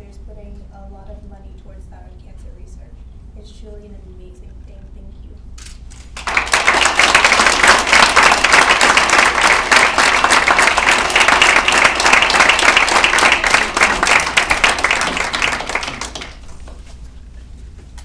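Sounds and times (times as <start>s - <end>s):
audience applauding: 6.2s - 16.8s.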